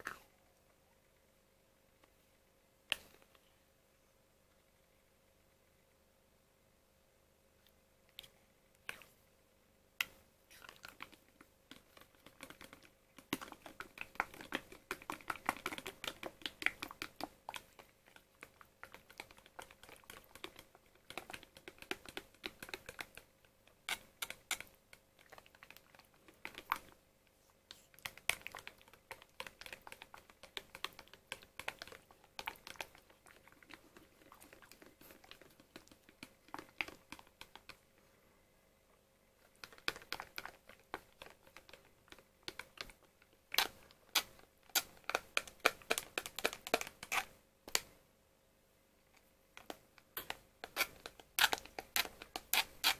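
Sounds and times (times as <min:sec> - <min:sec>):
spoon scraping plastic pot: 0:50.2 - 0:52.9.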